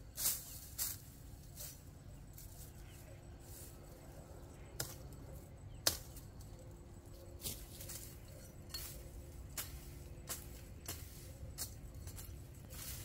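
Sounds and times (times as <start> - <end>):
machete chopping stalks: 5.8 - 6.3, 7.4 - 13.0.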